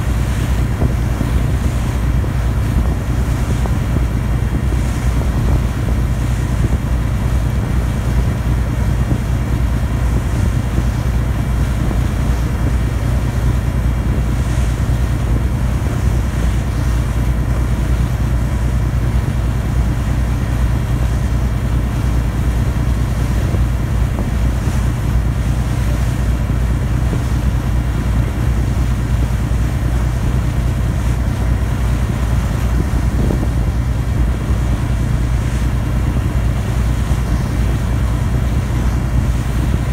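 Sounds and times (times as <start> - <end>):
water washing past hull: 0.0 - 39.9
wind buffeting microphone: 0.0 - 39.9
diesel engine drone: 31.3 - 39.9.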